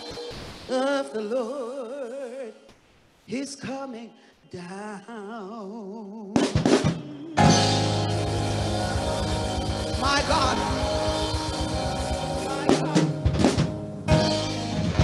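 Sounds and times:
gospel band playing: 6.4s - 15.0s
drum kit hits: 6.5s - 15.0s.

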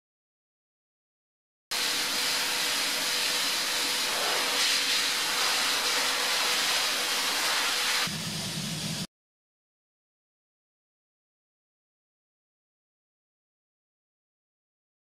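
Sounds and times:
blast nozzle air hissing: 1.8s - 9.1s.

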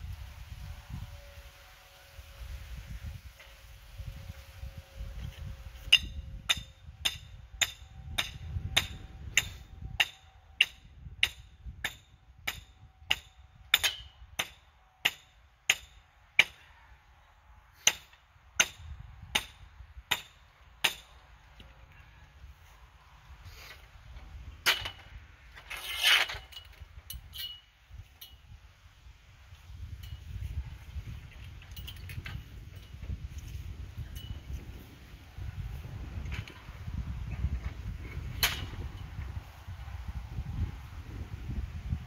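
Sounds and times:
wind rumble on microphone: 0.0s - 14.6s, 18.5s - 20.3s, 21.4s - 42.0s
hammer striking a stake: 5.8s - 16.6s, 17.8s - 21.7s, 24.6s - 25.1s, 38.3s - 38.8s.

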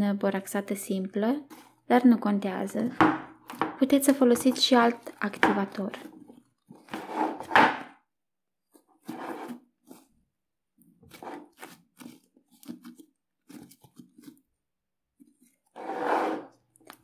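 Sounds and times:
slime squelching and tearing: 10.8s - 14.6s.

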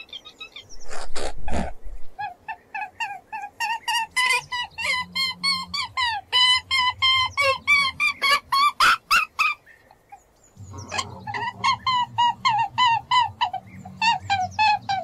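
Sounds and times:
low steady hum: 0.6s - 8.2s.

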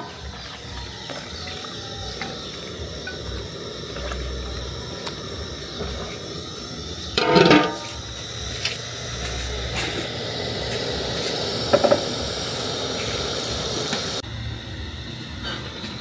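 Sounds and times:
metal lid clattering onto pot: 7.2s - 7.8s.

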